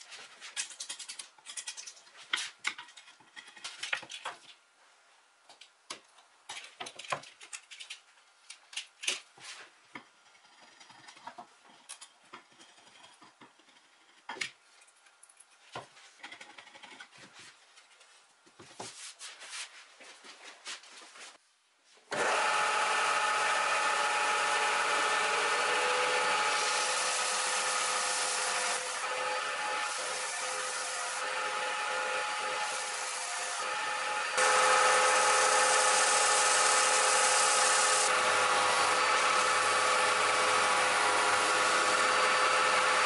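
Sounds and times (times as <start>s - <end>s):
blade shaving wood: 22.1s - 43.0s
belt sander sanding wood: 22.2s - 43.0s.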